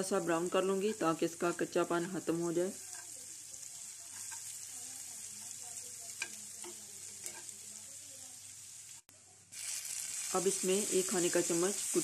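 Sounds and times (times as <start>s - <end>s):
garlic sizzling in butter: 0.0s - 12.0s
metal spoon stirring in pan: 0.1s - 12.0s.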